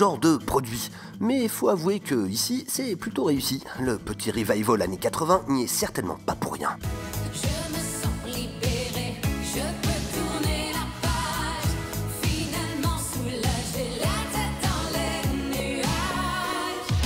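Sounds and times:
synth backing: 0:05.8 - 0:17.0
person singing: 0:07.1 - 0:17.0.

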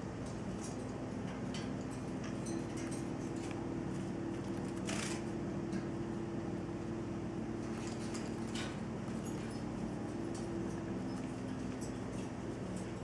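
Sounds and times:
steady low hum: 0:00.0 - 0:13.0
bird claws and beak on cage bars: 0:00.2 - 0:06.0, 0:07.6 - 0:13.0.

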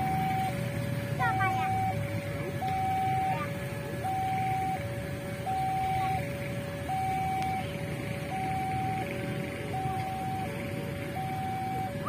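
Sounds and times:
steady low rumble: 0:00.0 - 0:12.0
two-tone crossing alarm: 0:00.0 - 0:12.0.

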